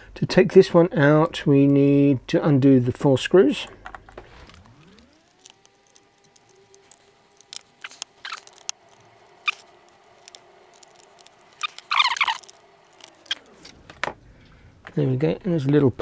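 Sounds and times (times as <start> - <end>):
faint steady hum: 0.0 - 16.0
screwdriver clicks and scrapes: 4.4 - 13.8.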